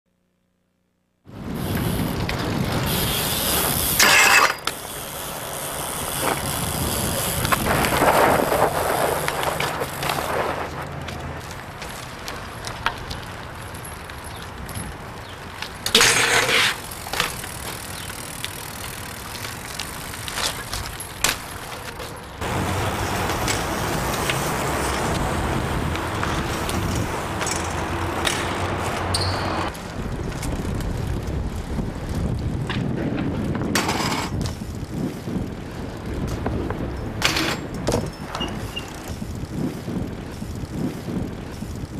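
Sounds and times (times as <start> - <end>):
bike tyres rolling on concrete: 1.2 - 41.9
outdoor street noise: 1.2 - 41.9
bike landing hits and clanks: 32.7 - 34.7, 37.0 - 39.2.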